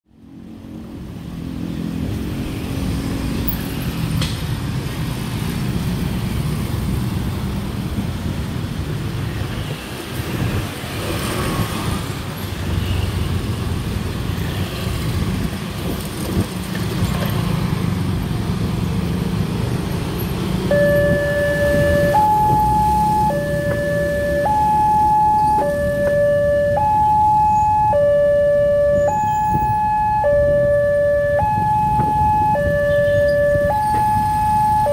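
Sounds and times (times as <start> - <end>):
traffic passing: 0.1 - 34.9
two-tone crossing alarm: 20.7 - 34.9.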